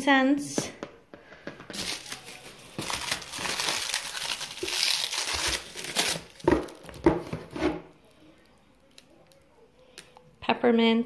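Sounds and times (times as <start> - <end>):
bubble wrap crinkling: 1.6 - 10.2.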